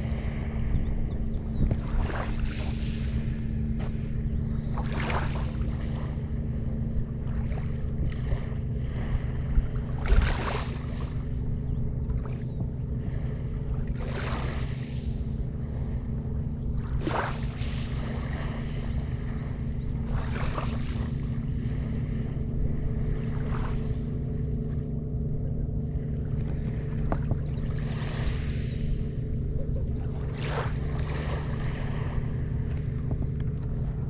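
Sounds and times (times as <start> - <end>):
wind buffeting microphone: 0.0 - 13.9.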